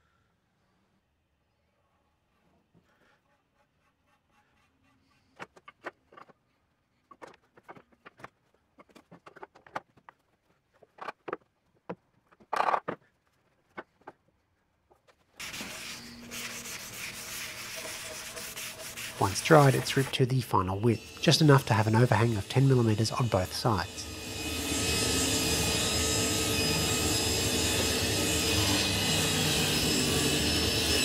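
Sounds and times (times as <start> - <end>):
wooden boards and clamps knocking: 7.1 - 10.2, 10.8 - 13.1
rubbing on wood: 15.4 - 20.7.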